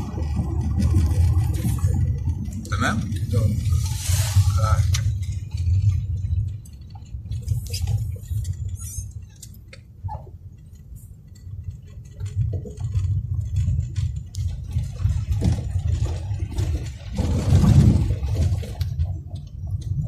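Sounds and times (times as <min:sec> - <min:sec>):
car driving rumble: 0:00.0 - 0:20.0
light clicks and rattles: 0:04.8 - 0:20.0.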